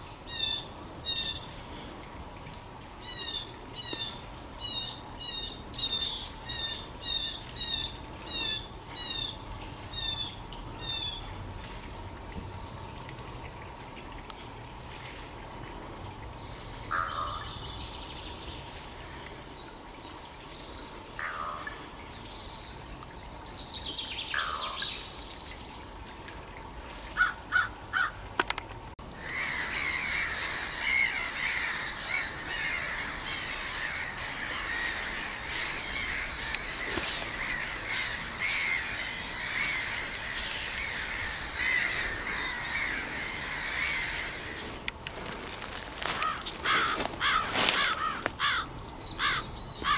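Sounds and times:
birds chirping and chattering: 29.3 - 49.9.

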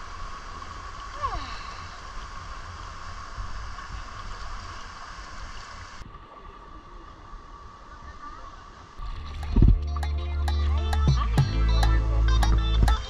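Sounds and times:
low rumble: 9.0 - 13.0.

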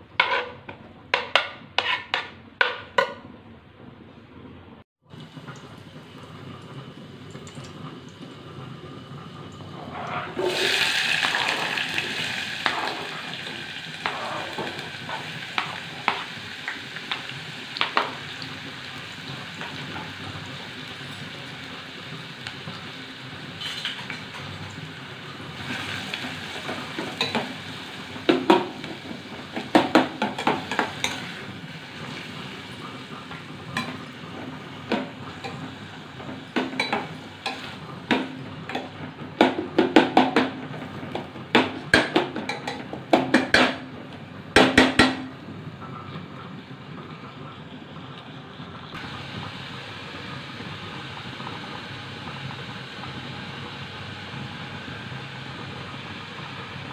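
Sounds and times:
spoon scraping metal pan: 0.2 - 3.1
onions sizzling in hot oil: 5.1 - 45.4, 47.6 - 56.9.

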